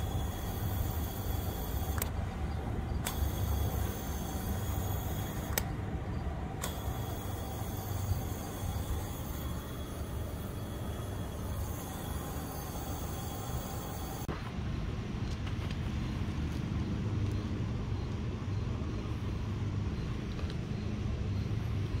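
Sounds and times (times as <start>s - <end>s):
propane hissing through hose: 0.0s - 2.1s, 3.0s - 5.6s, 6.6s - 14.3s.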